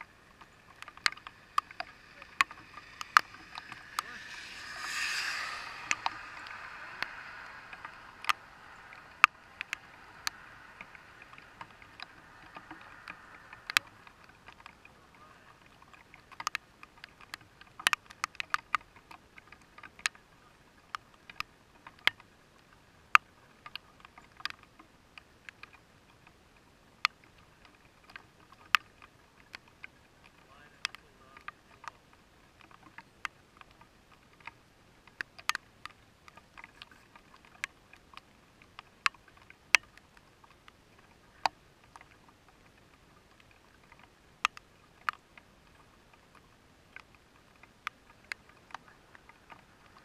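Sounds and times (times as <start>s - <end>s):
raindrops tapping on car windshield: 0.0s - 18.5s
faint hiss: 0.0s - 25.5s.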